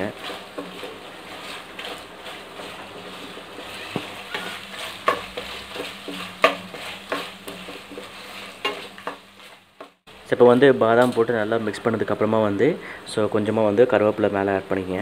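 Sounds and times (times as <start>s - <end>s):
wooden spatula stirring and scraping: 0.0s - 10.1s
light sizzle: 0.0s - 15.0s.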